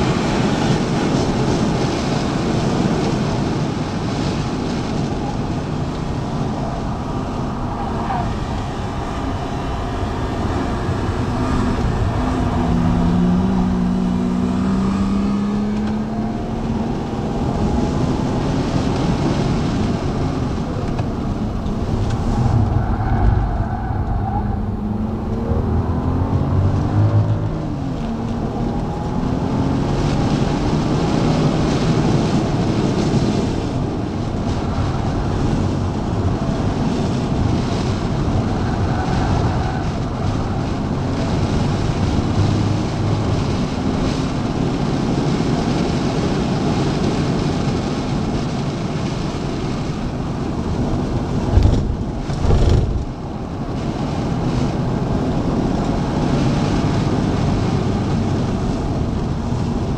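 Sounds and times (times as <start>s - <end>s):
car engine running hard: 0.0s - 59.9s
road and wind noise: 0.0s - 59.9s
low thumps: 51.5s - 53.2s.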